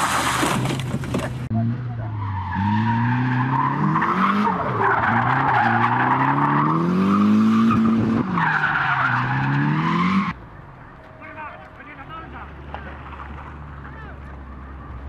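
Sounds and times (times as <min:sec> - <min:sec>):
tyres squealing: 0:00.0 - 0:10.3
car engine revving: 0:01.3 - 0:10.4.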